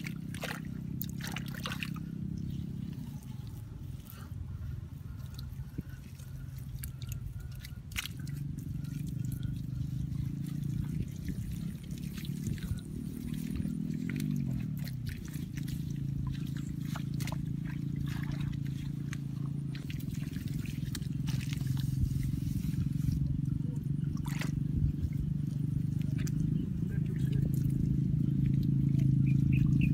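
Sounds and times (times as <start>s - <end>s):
hand scooping wet mud: 0.0s - 29.5s
low steady drone: 0.0s - 29.9s
water trickling and dripping: 5.1s - 22.4s.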